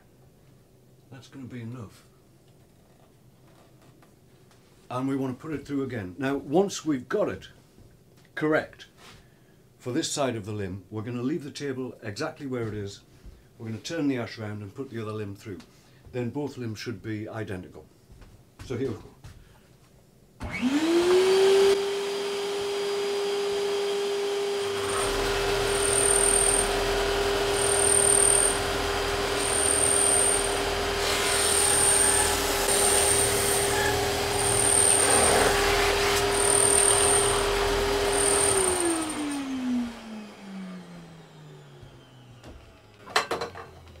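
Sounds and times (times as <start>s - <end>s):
drum sander motor whine: 20.4s - 44.0s.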